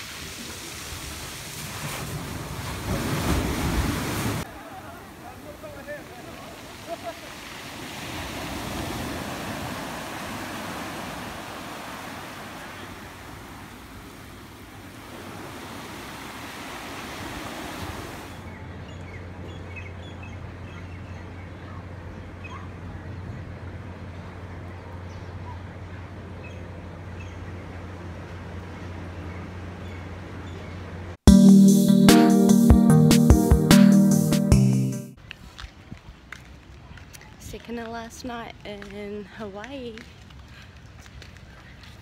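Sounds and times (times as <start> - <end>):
surf breaking on beach: 0.0 - 18.4.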